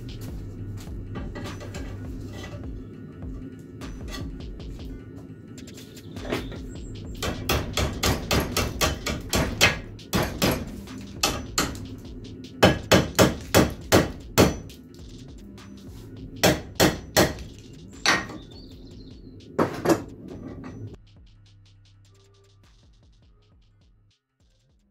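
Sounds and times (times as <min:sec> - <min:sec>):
hammer striking metal: 0:01.1 - 0:02.8, 0:06.2 - 0:15.0, 0:15.6 - 0:18.6.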